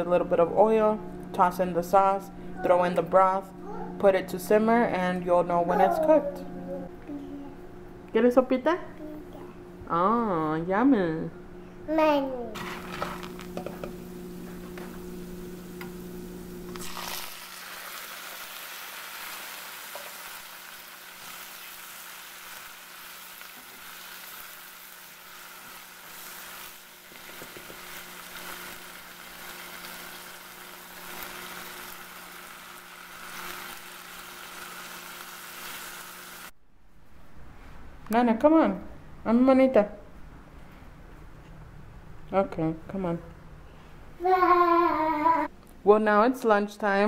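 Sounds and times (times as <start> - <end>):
noodles sizzling in oil: 12.6 - 36.5.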